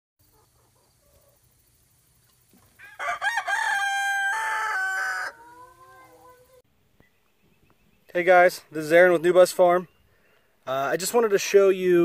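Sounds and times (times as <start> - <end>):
rooster crowing: 2.8 - 6.6.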